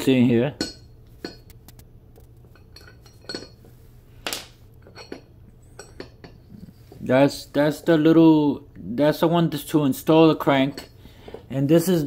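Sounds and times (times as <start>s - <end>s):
metal tools clinking on floor: 2.5s - 3.6s.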